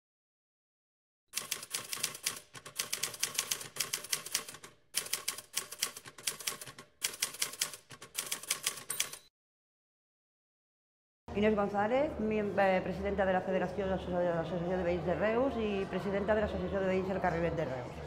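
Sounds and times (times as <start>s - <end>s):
rapid keyboard key clacks: 1.4s - 9.2s.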